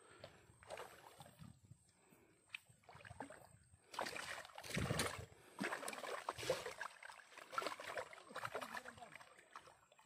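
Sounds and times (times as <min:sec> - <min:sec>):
fish splashing in water: 0:02.8 - 0:10.0.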